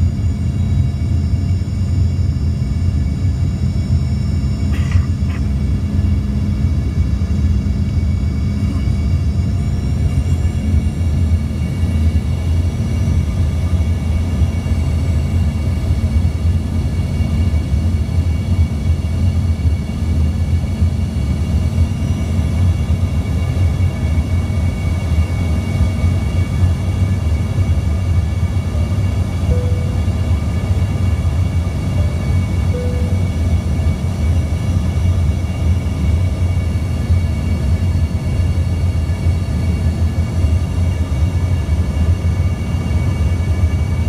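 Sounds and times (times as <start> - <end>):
low rumble of airflow and engines: 0.0 - 44.0
thin steady whining tones: 0.0 - 44.0.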